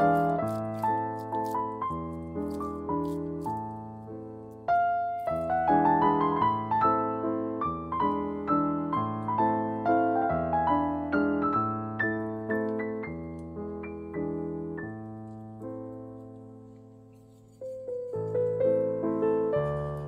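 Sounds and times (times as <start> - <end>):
low piano chords: 0.0 - 20.0
slow piano melody: 0.0 - 20.0.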